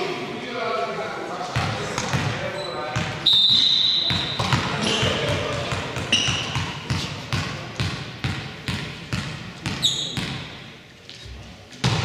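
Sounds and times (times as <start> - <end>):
basketball bouncing on court: 1.6 - 3.3, 4.0 - 10.7
sneaker squeaks: 1.6 - 7.2, 9.2 - 12.0.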